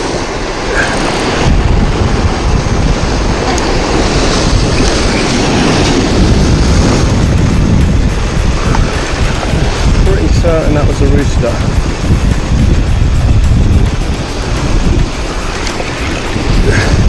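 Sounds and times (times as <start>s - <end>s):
waves breaking over rocks: 0.0s - 17.0s
wind buffeting microphone: 0.0s - 17.0s.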